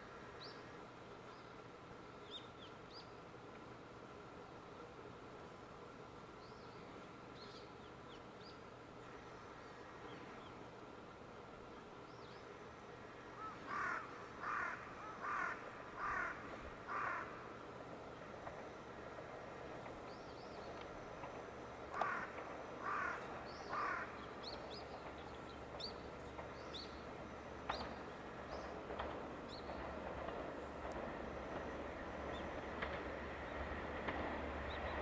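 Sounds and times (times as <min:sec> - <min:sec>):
low rumble of diesel railcar: 0:00.0 - 0:35.0
crow cawing: 0:13.4 - 0:17.4, 0:21.9 - 0:24.2
small birds chirping: 0:22.8 - 0:30.0.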